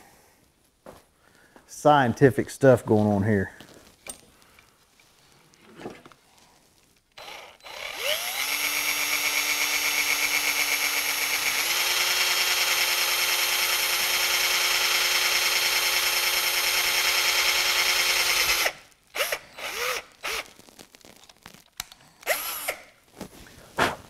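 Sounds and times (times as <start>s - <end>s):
cordless drill boring through metal: 7.2s - 20.5s, 22.2s - 22.9s.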